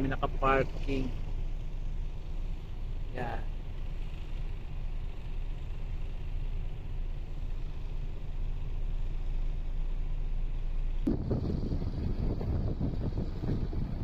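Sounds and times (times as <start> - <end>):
diesel truck engine idling: 0.0 - 14.0
gusty noise: 11.1 - 14.0.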